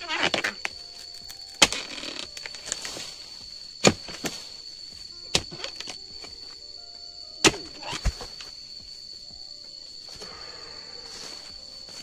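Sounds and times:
chisel chopping palm fronds: 0.1 - 4.6, 5.3 - 6.4, 7.4 - 8.4.

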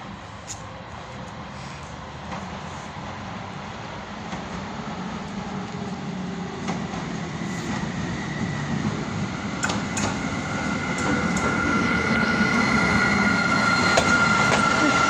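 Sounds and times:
diesel locomotive engine: 0.0 - 15.0.

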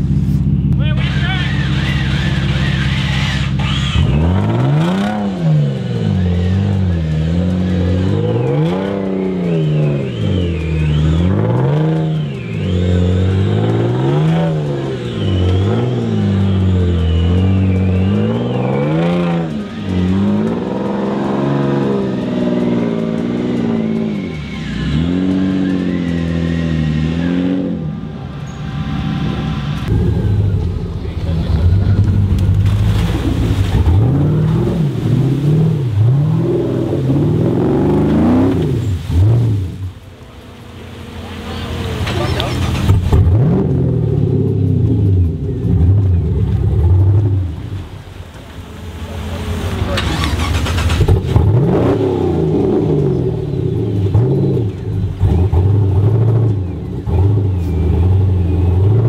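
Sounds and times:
truck engine revving: 0.0 - 59.0.

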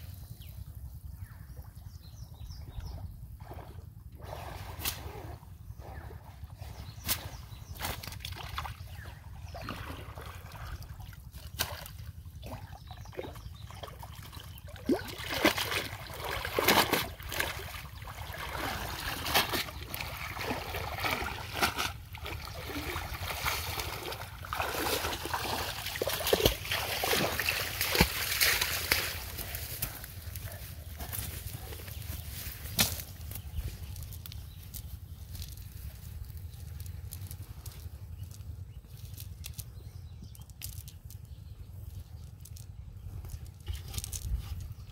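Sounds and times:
water splashing and dripping: 9.6 - 29.8.

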